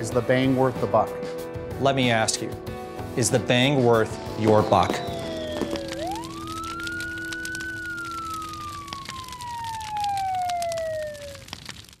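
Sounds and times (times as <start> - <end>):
siren-like whistling tone: 4.4 - 11.5
sharp crackles and pops: 4.4 - 12.0.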